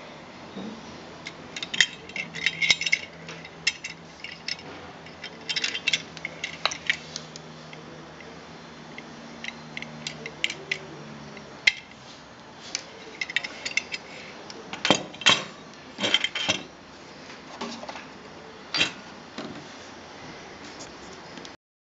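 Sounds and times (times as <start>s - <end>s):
metal clicks and clinks: 1.2s - 8.3s, 8.9s - 12.0s, 13.0s - 14.1s.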